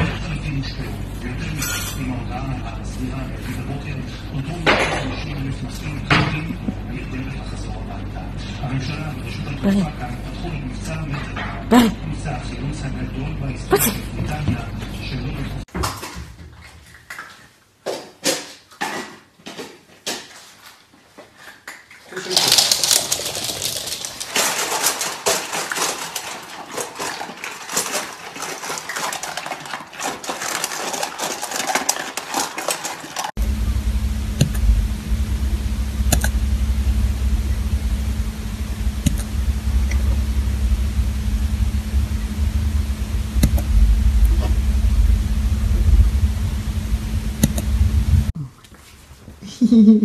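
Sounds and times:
low hum: 0:00.0 - 0:15.7, 0:33.3 - 0:48.4
dogs scrabbling on hard floor: 0:15.7 - 0:33.4.

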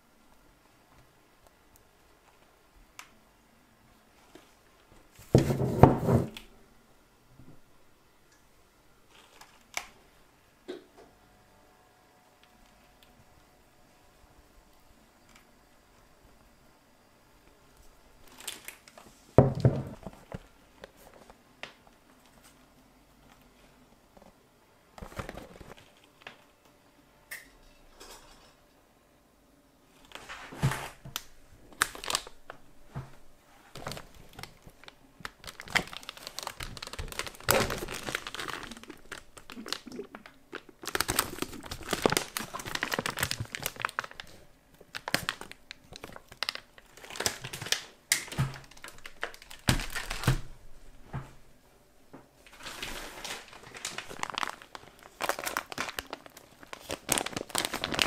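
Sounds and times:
plastic packaging crinkling: 0:09.1 - 0:10.0, 0:18.2 - 0:19.1, 0:25.0 - 0:26.5, 0:30.0 - 0:50.5, 0:52.4 - 0:58.0.

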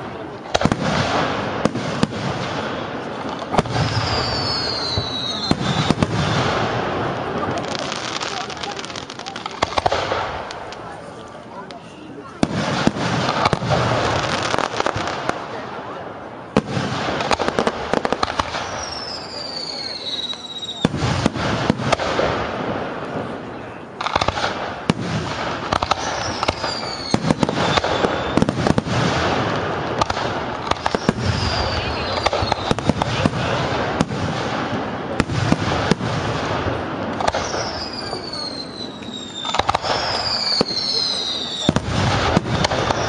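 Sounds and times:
firework whistles gliding down: 0:03.6 - 0:06.5, 0:18.4 - 0:20.9, 0:25.8 - 0:28.8, 0:30.8 - 0:33.1, 0:37.2 - 0:43.0.

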